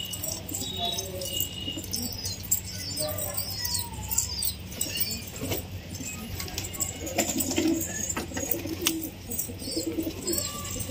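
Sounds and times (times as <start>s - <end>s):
high bird chirping: 0.0s - 5.4s, 9.4s - 10.9s
pigeons cooing: 0.1s - 10.9s.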